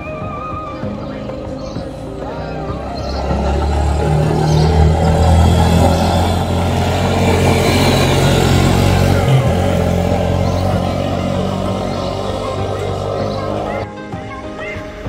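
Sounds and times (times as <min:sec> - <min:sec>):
quad bike engine passing: 0:00.0 - 0:14.0.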